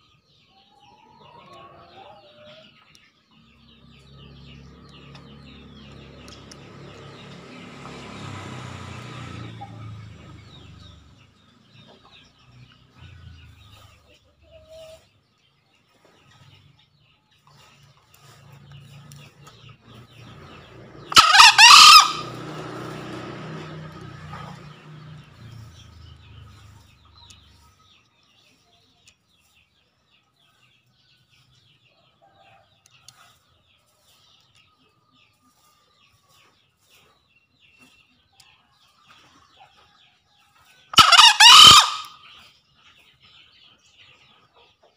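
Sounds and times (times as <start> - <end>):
junglefowl crowing: 21.0 - 22.6, 41.0 - 42.2.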